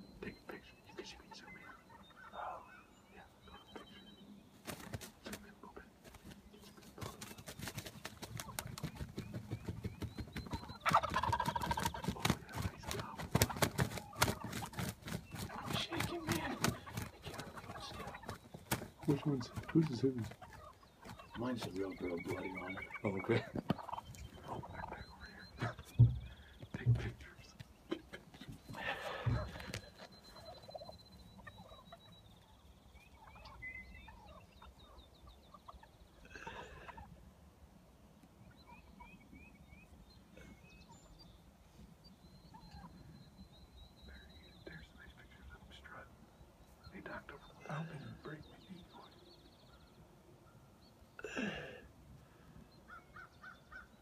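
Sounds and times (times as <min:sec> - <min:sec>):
wild turkeys calling: 0:00.0 - 0:54.0
soft knocks and thumps: 0:25.9 - 0:27.1, 0:28.4 - 0:29.8.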